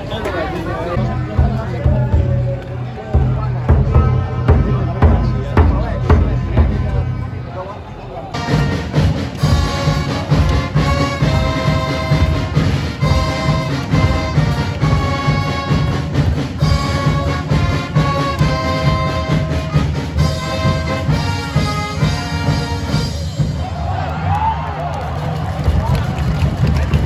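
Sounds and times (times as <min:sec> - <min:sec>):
steady low beat: 0:01.0 - 0:07.4
brass playing held notes: 0:08.4 - 0:23.4.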